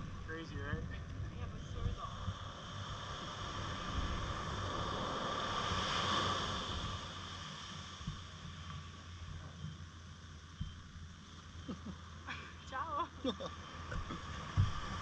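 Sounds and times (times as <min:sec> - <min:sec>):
wind buffeting microphone: 0:00.0 - 0:07.4, 0:13.9 - 0:15.0.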